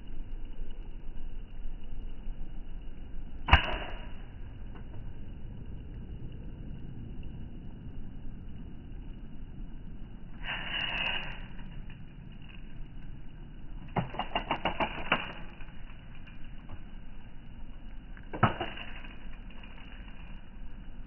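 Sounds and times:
bb gun shot: 3.5 - 4.2
bb gun clicks: 14.0 - 15.5.

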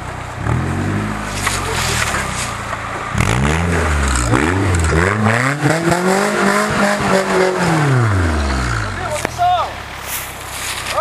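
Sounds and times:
engine revving hard: 3.1 - 9.2.

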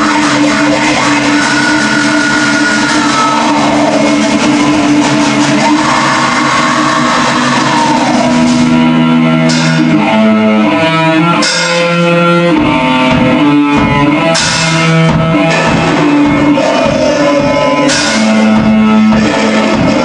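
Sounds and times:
cymbal crashes: 0.0 - 10.6, 14.3 - 16.5, 17.9 - 19.6
drums: 0.0 - 20.0
electric guitar riff: 0.0 - 20.0.

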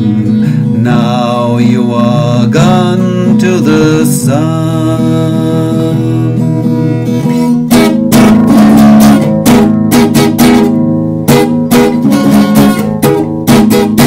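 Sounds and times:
guitar strumming chords: 0.0 - 14.0.

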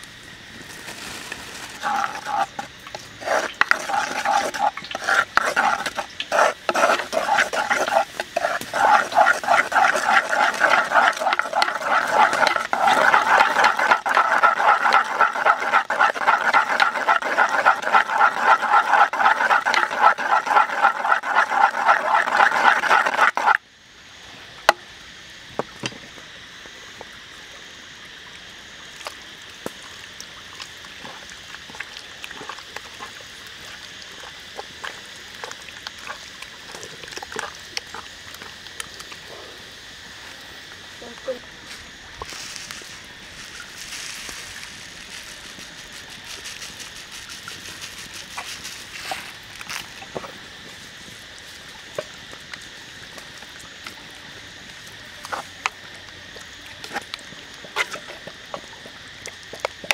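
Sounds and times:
utensil beating batter in pot: 1.8 - 23.6.

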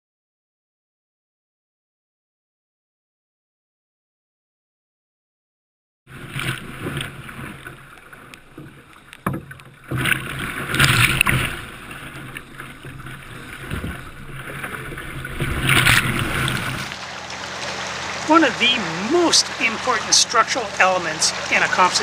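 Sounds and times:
sea water splashing over kayak: 6.1 - 22.0.

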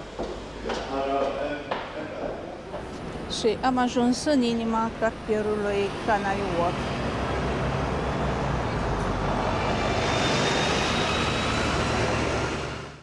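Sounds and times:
bus passing: 2.5 - 13.0.

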